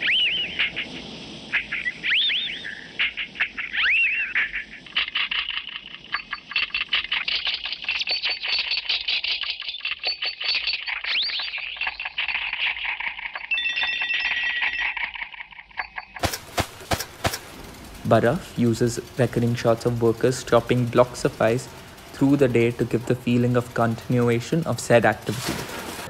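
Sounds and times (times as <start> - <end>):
machinery clicking and clinking: 11.8 - 26.0.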